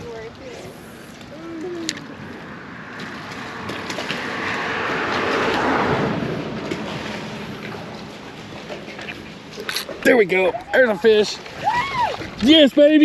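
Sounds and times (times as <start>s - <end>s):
vehicle passing close by: 0.9s - 9.4s.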